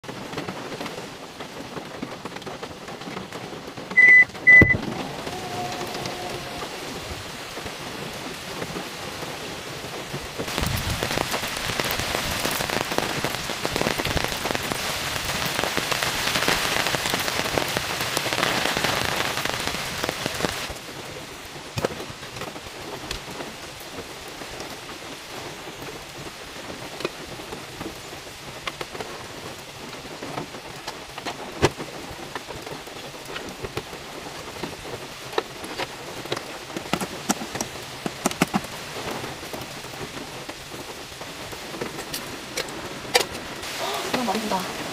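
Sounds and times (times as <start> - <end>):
rain pattering: 0.0 - 44.9
short high beeps: 4.0 - 4.8.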